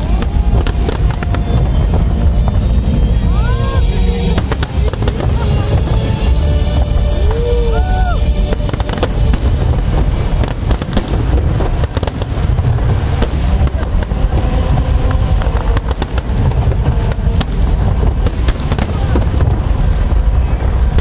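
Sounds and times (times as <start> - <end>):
firework bangs and crackles: 0.0 - 21.0.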